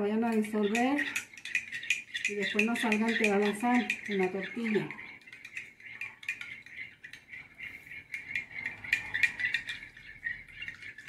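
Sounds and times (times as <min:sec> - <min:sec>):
metal spoon clinking on glass: 0:00.3 - 0:07.2.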